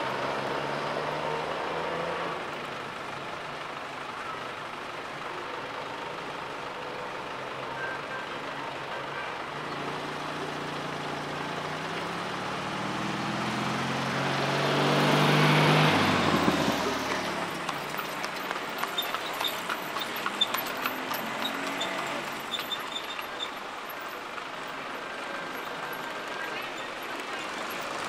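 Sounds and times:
light traffic noise: 0.0s - 28.0s
vehicle passing by: 10.0s - 23.0s.

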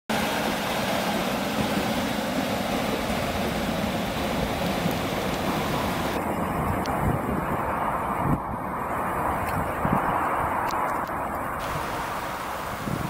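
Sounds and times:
diesel train pulling away: 0.1s - 6.6s.

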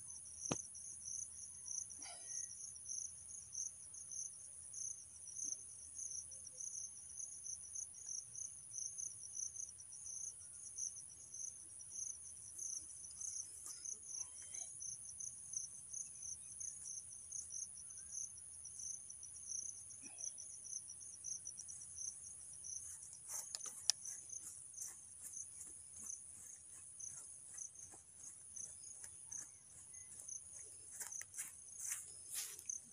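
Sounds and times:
insects chirping: 0.0s - 32.9s.

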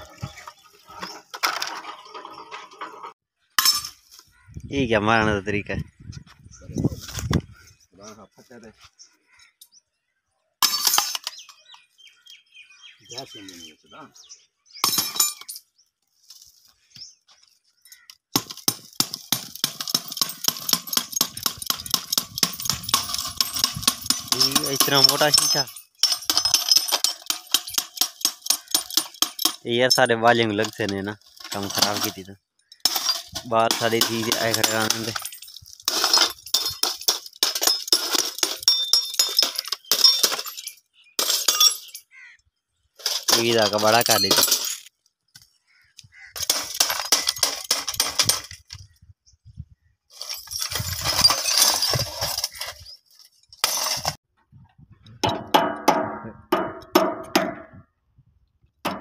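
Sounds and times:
clinks and knocks of glass: 3.6s - 4.0s, 10.6s - 11.7s, 14.8s - 15.7s, 18.4s - 42.1s, 43.0s - 44.9s, 46.4s - 48.8s, 50.2s - 54.2s, 55.2s - 57.8s
glass crashing: 3.6s - 4.0s, 10.6s - 11.6s, 14.8s - 15.6s, 18.4s - 29.7s, 30.5s - 42.1s, 43.0s - 44.9s, 46.4s - 48.6s, 50.2s - 52.9s, 53.6s - 54.2s
broken glass pieces rattling: 10.6s - 11.6s, 14.8s - 15.7s, 18.4s - 42.1s, 43.0s - 45.0s, 46.3s - 48.8s, 50.1s - 54.2s.

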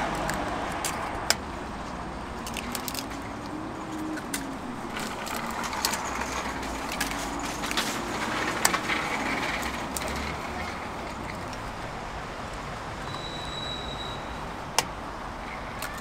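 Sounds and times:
street noise: 0.0s - 16.0s
eggshells cracking: 2.4s - 3.2s.

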